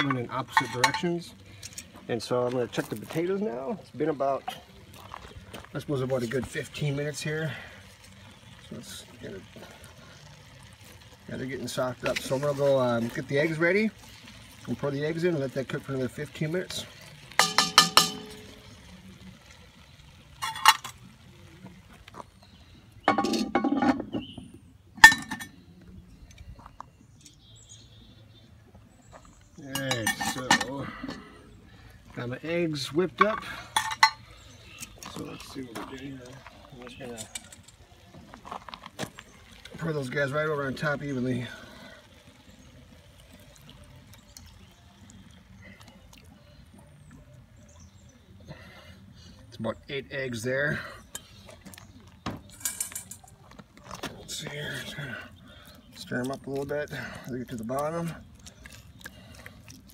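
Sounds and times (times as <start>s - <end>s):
dishes and utensils clinking: 0.0s - 1.1s, 17.4s - 18.5s, 20.4s - 21.0s, 23.1s - 24.3s, 25.0s - 25.6s, 29.7s - 31.2s, 33.2s - 34.3s, 52.3s - 53.4s
eggs pouring into a pot: 4.7s - 22.0s, 38.8s - 46.4s.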